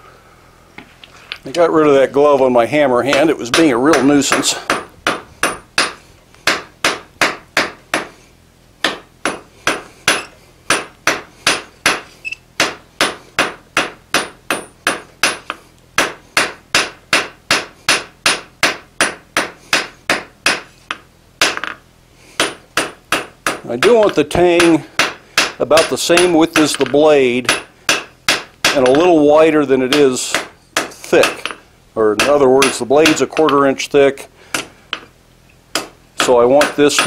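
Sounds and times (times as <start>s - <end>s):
hammer striking steel on anvil: 3.1s - 8.1s, 8.8s - 21.8s, 22.4s - 29.3s, 29.9s - 31.6s.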